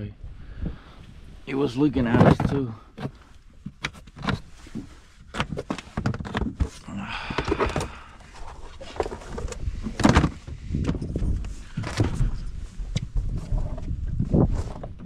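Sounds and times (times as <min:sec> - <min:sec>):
knocks and thumps in boat: 0:02.0 - 0:15.0.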